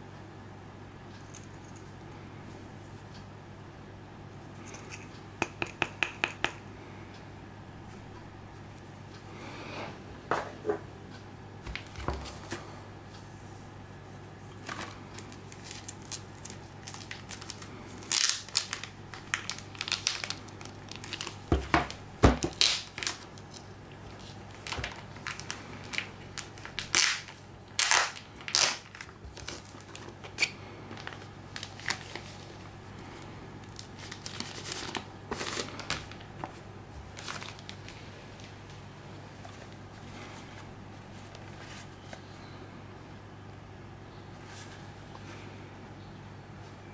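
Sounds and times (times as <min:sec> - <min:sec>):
steady low hum: 0:00.0 - 0:46.9
plastic packaging crinkling: 0:14.5 - 0:32.8, 0:33.6 - 0:38.8.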